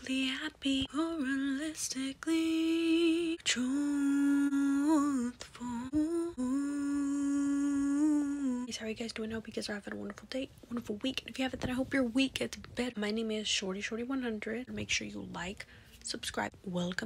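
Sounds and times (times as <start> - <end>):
woman humming: 3.7 - 8.7.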